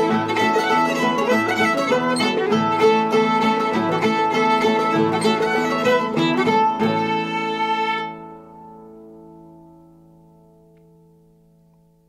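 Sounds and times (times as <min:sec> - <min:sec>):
string band playing: 0:00.0 - 0:08.6.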